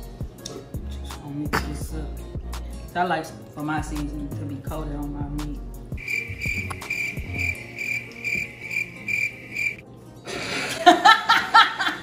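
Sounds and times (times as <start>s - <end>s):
woman laughing loudly: 10.4s - 12.0s.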